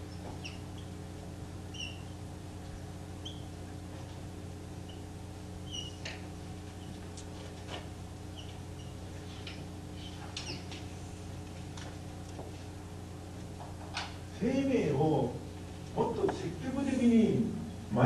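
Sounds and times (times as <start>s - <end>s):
steady low hum: 0.0s - 18.0s
whiteboard marker squeaking: 0.1s - 0.9s, 1.7s - 2.2s, 3.2s - 3.6s, 4.8s - 7.0s, 8.3s - 9.1s, 10.0s - 10.8s.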